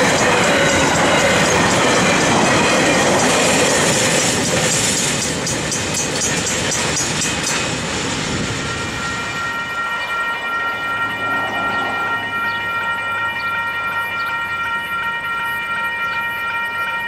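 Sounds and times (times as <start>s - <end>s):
wheels clicking over rail joints: 0.0s - 8.3s
freight train wagons rolling: 0.0s - 11.7s.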